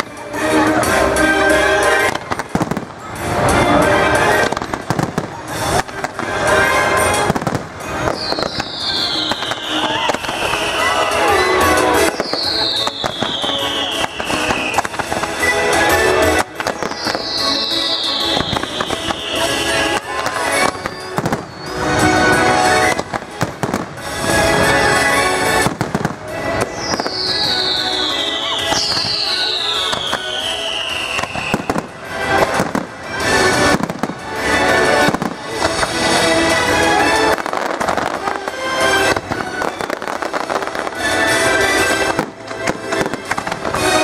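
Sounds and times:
fireworks bangs and crackling: 0.0 - 44.0
music playing: 0.0 - 44.0
firework whistle falling in pitch: 8.1 - 15.4, 16.6 - 21.9, 26.6 - 31.9.

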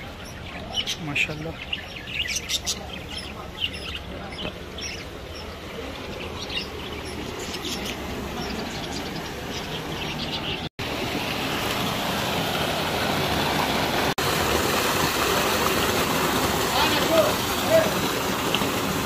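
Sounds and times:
parakeets chirping: 0.0 - 10.7
water pouring into basin: 10.8 - 19.0.

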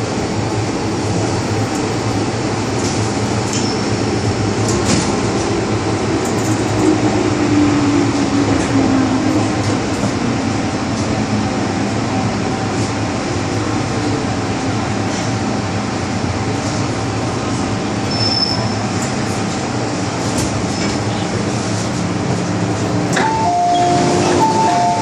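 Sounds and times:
metro train rumble: 0.0 - 25.0
high squeal: 18.1 - 18.8.

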